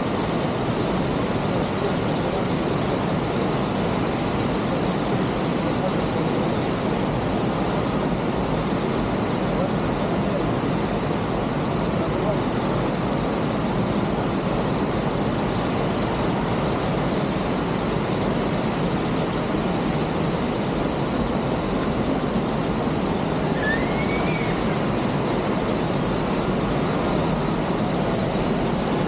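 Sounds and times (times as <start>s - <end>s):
waterfall roaring: 0.0s - 29.0s
faint rising chirp: 23.5s - 25.0s.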